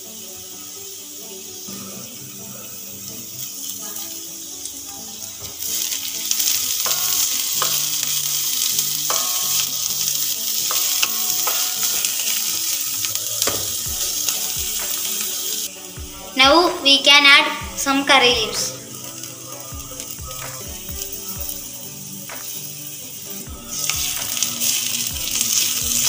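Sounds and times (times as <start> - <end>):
onion sizzling in hot oil: 0.0 - 26.0
wooden spatula scraping wok: 3.2 - 16.4.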